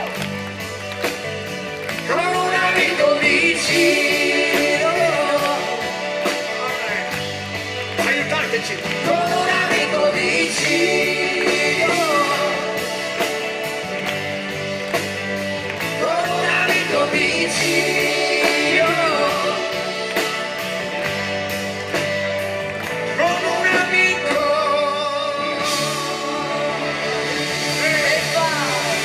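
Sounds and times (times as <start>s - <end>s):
live pop-rock band: 0.0s - 29.0s
wordless vocals: 2.0s - 7.1s, 8.0s - 13.3s, 15.8s - 20.4s, 23.1s - 29.0s.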